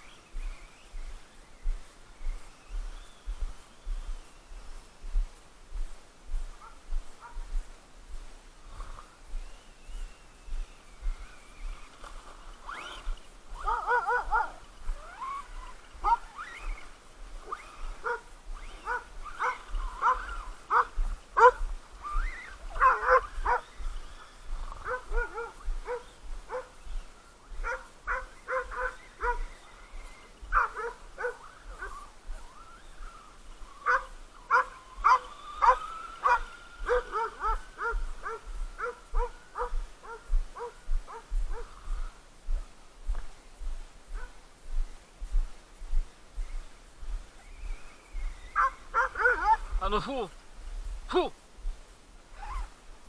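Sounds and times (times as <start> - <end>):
thin steady whine: 0.0 - 53.0
dogs barking: 6.6 - 7.5, 13.6 - 16.8, 17.4 - 21.7, 22.6 - 23.8, 24.6 - 26.8, 27.6 - 29.6, 30.5 - 32.1, 33.8 - 41.8, 48.6 - 49.8.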